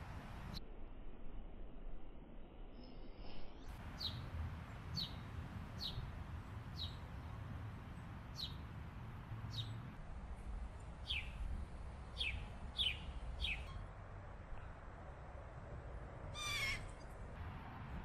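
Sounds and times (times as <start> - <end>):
bird chirps: 12.2 - 13.9.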